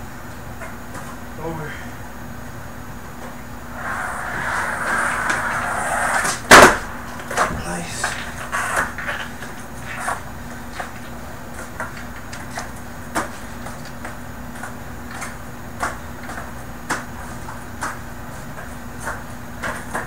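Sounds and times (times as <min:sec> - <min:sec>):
steady low hum: 0:00.0 - 0:20.0
skateboard knocking and clacking: 0:03.8 - 0:17.1.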